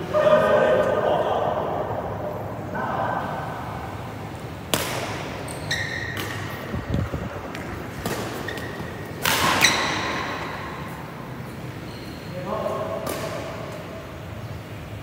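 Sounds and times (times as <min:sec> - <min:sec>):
rackets striking shuttlecock: 0:04.6 - 0:06.7, 0:07.4 - 0:11.0, 0:12.9 - 0:13.8
shoes squeaking on court: 0:05.2 - 0:12.5.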